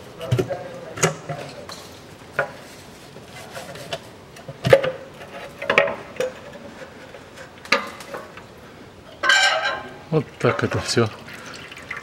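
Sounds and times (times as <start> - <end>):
metallic knocks and scrapes: 3.3 - 8.3, 9.2 - 10.7.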